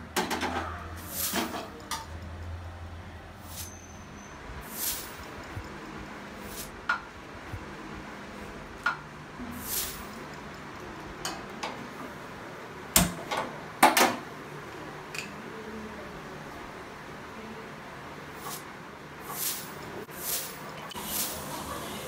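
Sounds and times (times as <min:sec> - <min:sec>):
utensils clicking on stove: 0:08.8 - 0:11.9.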